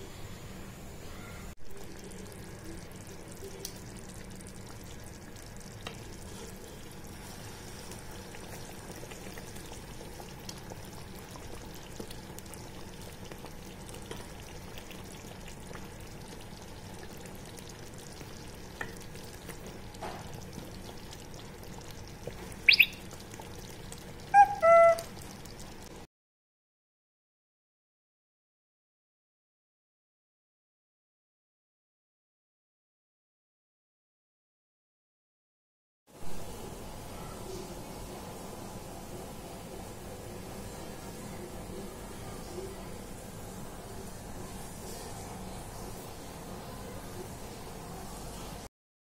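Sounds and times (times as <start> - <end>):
curry sizzling in a pan: 1.7 - 26.1, 36.2 - 48.7.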